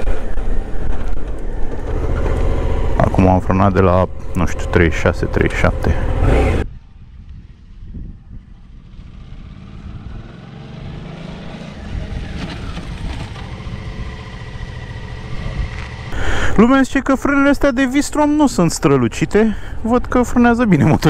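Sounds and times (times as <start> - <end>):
motorcycle engine approaching: 0.0 - 16.2.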